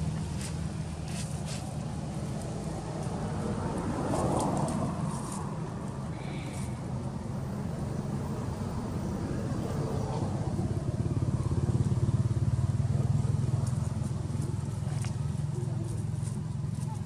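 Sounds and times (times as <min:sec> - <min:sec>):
small engine pulsing drone: 0:06.1 - 0:17.0.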